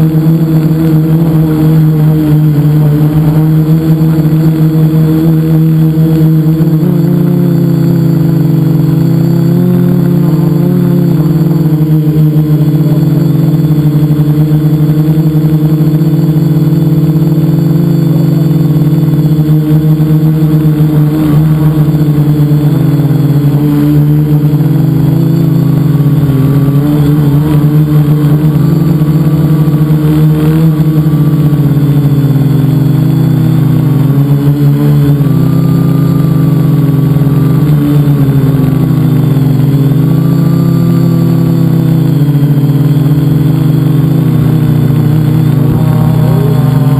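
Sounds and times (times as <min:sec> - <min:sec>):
drone motors humming: 0:00.0 - 0:46.9.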